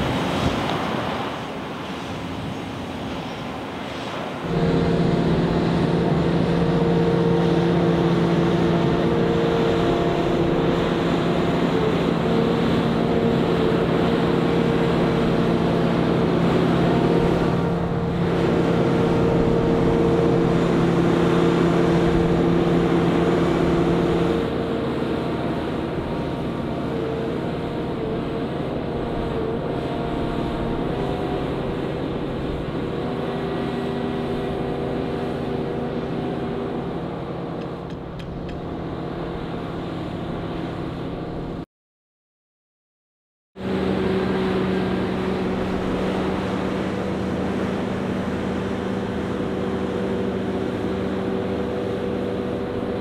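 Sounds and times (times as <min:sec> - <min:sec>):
diesel engine running under load: 0:04.5 - 0:41.6.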